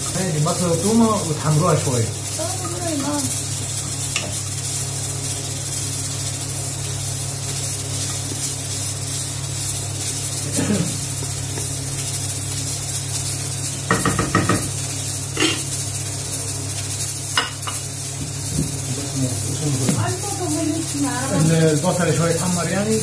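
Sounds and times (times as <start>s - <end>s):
onions sizzling in oil: 0.0s - 23.0s.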